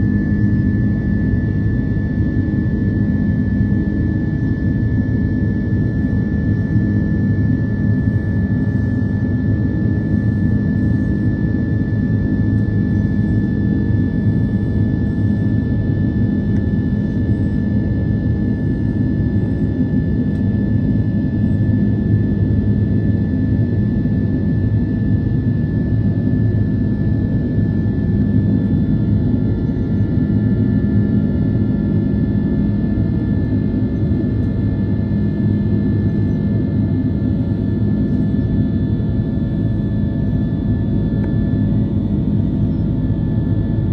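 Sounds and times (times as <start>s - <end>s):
jet engine and airflow rumble: 0.0s - 43.9s.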